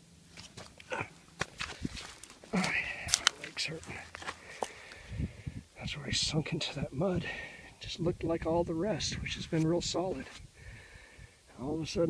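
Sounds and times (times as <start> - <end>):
footsteps on mud and dry leaves: 0.3 - 5.1.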